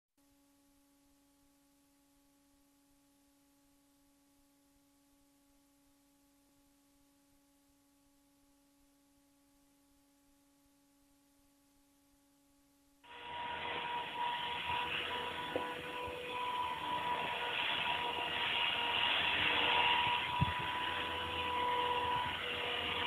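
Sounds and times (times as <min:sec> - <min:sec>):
faint steady hum: 0:00.2 - 0:23.0.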